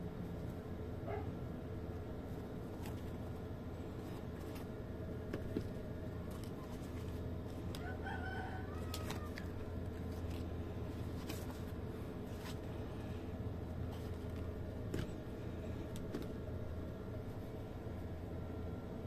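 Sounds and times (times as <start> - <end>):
low hum: 0.0 - 19.0
rooster crowing: 7.7 - 9.8.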